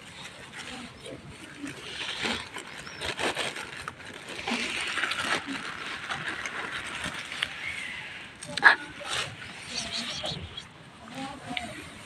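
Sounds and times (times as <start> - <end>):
plastic bag rustling and crinkling: 0.0 - 8.2.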